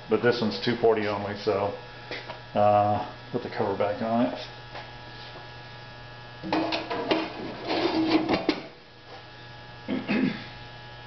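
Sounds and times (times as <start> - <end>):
steady electrical hum: 0.0 - 11.0.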